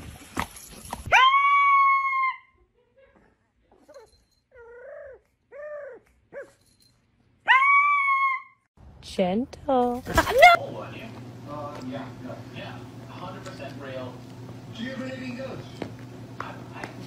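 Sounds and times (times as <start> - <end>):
small dog howling: 1.1 - 2.5, 7.5 - 8.6.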